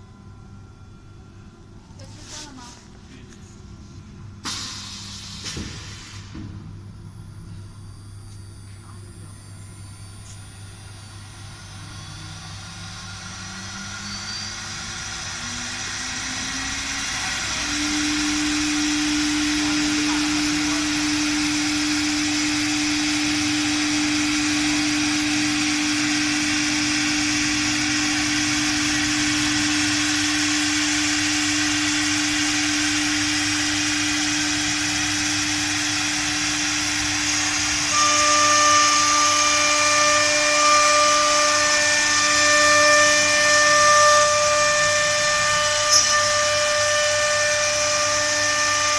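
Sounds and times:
low machine hum: 0.0s - 48.9s
router spindle whine: 7.8s - 48.9s
hiss of cutting wood: 12.6s - 48.9s.

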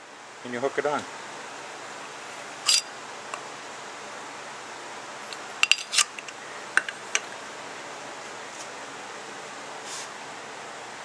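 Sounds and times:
metal fuel pump parts clicking: 2.7s - 2.9s, 5.3s - 7.2s.

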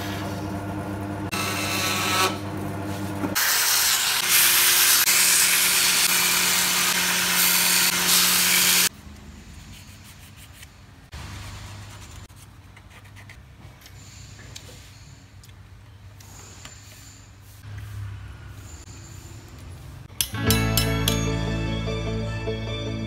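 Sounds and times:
band saw motor hum: 0.0s - 8.9s.

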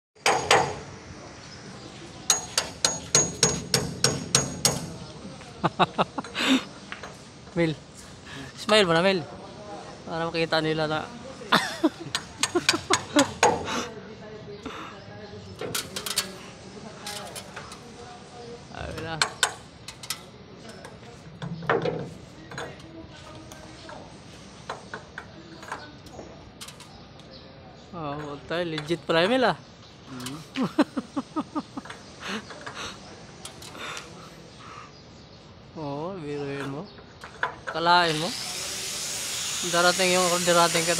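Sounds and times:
hammer striking steel punch: 2.3s - 5.0s
pliers clicking on metal nut: 19.3s - 21.0s.

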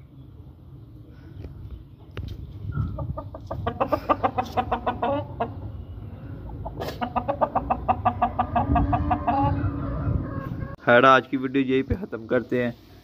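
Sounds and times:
chicken clucking: 2.7s - 10.8s.

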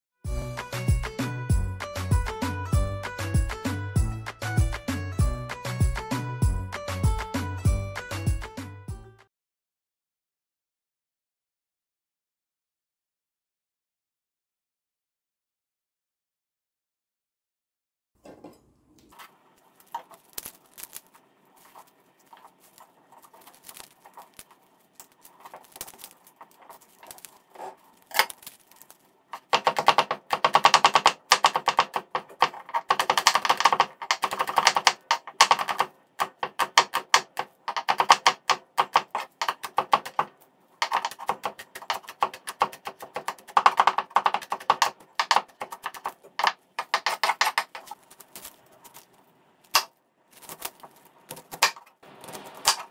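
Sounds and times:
knife chopping on wooden board: 29.4s - 47.9s, 51.3s - 52.9s.

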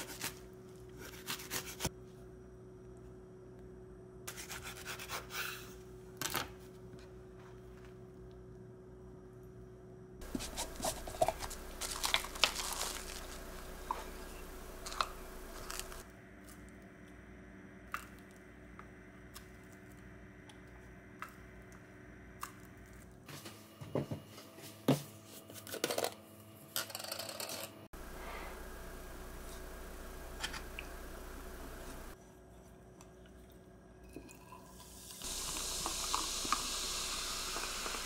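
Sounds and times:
plastic wrap rustling: 10.2s - 16.0s.

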